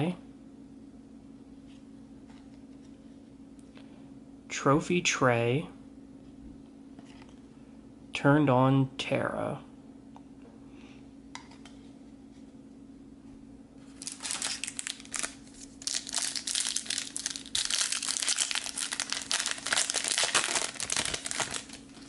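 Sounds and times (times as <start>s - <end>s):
foil wrapper crinkling and tearing: 13.9s - 22.0s.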